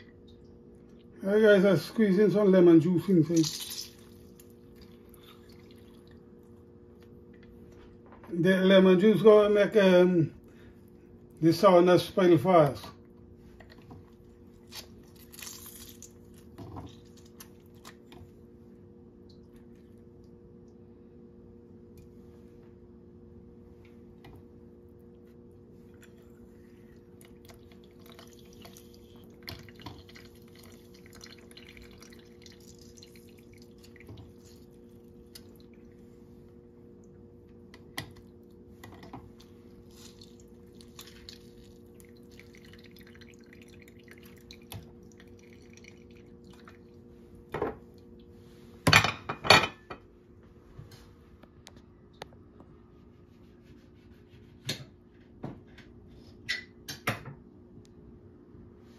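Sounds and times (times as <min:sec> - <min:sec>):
steady low hum: 0:00.0 - 0:58.9
dishes clinking: 0:48.9 - 0:50.0.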